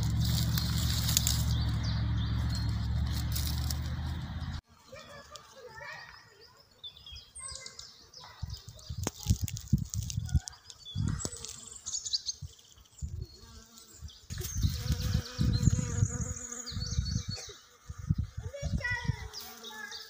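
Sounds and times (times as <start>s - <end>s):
bees buzzing: 0.0s - 5.4s, 13.3s - 20.0s
birds chirping: 0.0s - 20.0s
wind buffeting microphone: 8.3s - 11.4s, 14.0s - 19.4s.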